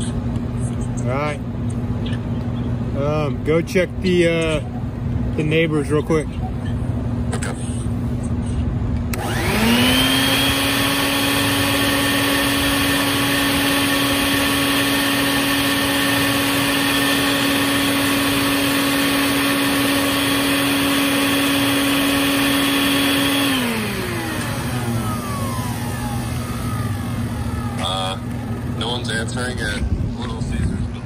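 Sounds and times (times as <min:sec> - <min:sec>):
shop vacuum motor running: 0:09.1 - 0:30.4.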